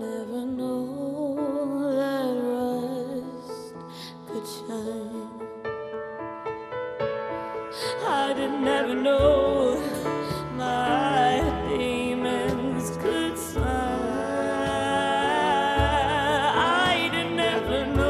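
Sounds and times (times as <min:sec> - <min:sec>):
woman singing: 0:00.0 - 0:05.6, 0:07.8 - 0:18.0
grand piano: 0:00.0 - 0:18.0
fingerpicked acoustic guitar: 0:08.4 - 0:18.0
cajon beat: 0:09.2 - 0:18.0.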